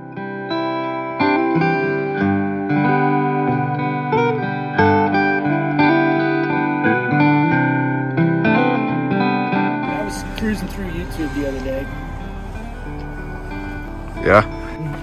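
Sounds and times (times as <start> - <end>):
plucked guitar tune: 0.0 - 15.0.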